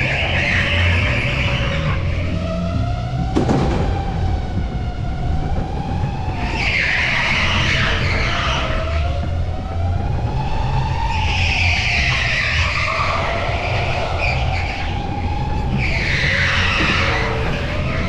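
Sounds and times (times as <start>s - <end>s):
tyres squealing: 0.0s - 2.9s, 6.3s - 9.5s, 10.4s - 18.0s.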